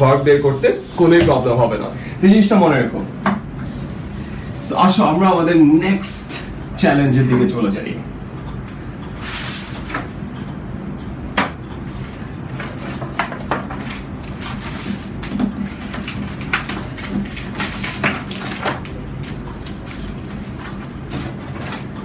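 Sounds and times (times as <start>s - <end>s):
steady low hum: 0.0s - 22.0s
paper rustling: 11.9s - 21.9s.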